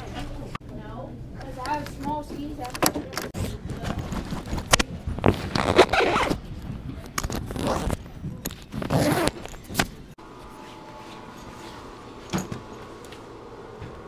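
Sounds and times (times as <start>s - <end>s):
zipper rasping: 4.4s - 6.4s, 7.2s - 8.0s, 8.7s - 9.5s.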